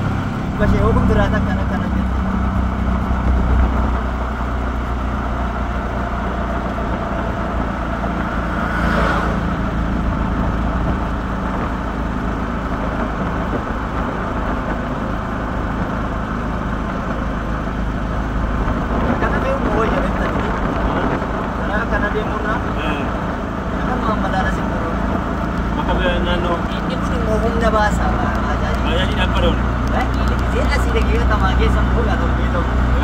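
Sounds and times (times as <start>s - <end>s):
vehicle engine and road rumble: 0.0s - 33.0s
brief rushing swell: 8.1s - 10.1s.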